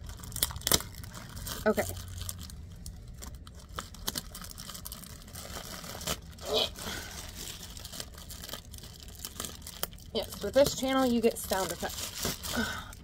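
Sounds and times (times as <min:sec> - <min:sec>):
plastic ripping: 0:00.0 - 0:13.0
scissors cutting plastic mailer: 0:09.2 - 0:12.9.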